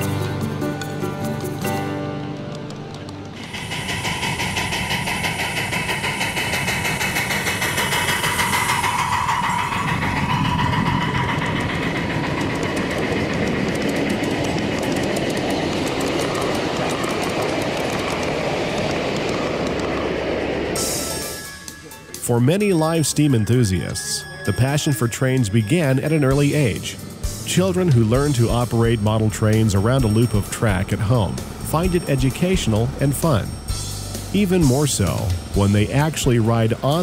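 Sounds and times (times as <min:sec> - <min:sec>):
train wheels clicking over rail joints: 0:00.0 - 0:37.0
steady high tone: 0:03.4 - 0:15.0, 0:19.4 - 0:37.0.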